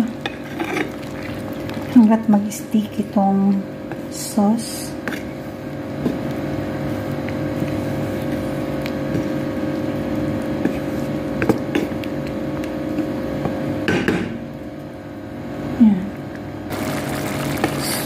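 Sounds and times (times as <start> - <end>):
kitchen appliance humming: 0.0 - 18.0
wooden spatula stirring a metal pot: 6.1 - 12.2.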